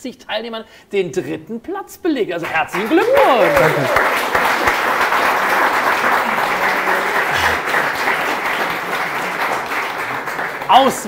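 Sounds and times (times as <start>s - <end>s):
people applauding: 2.4s - 11.0s.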